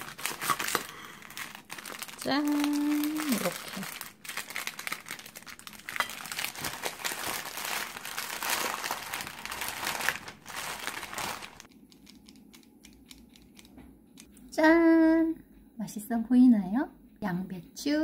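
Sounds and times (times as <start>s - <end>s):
plastic bag and paper crinkling: 0.0s - 11.7s.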